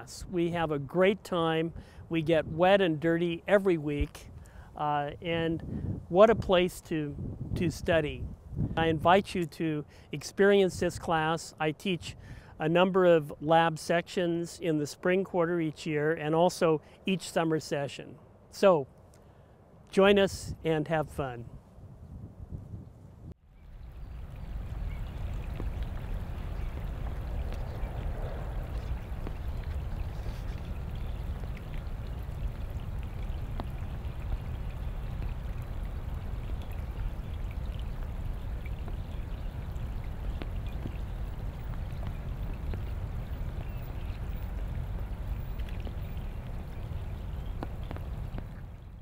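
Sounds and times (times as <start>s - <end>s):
rain hissing on pond: 0.0s - 15.0s, 23.4s - 49.0s
raindrop ticks: 24.0s - 48.9s.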